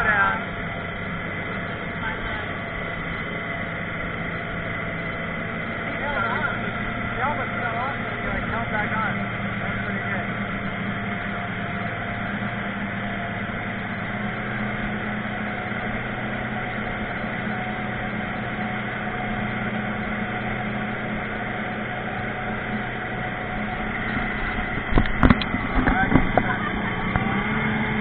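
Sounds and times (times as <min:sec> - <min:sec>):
outboard motor humming: 0:00.0 - 0:28.0.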